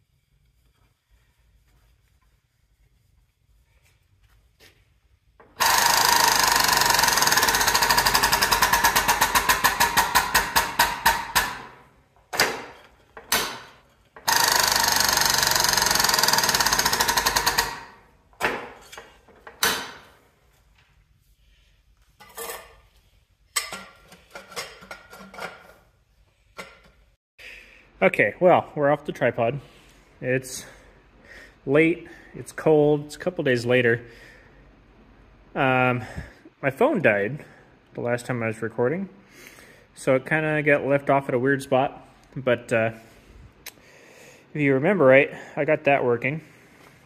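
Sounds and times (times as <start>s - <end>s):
hydraulic pump strokes: 5.5s - 11.6s, 14.2s - 17.9s.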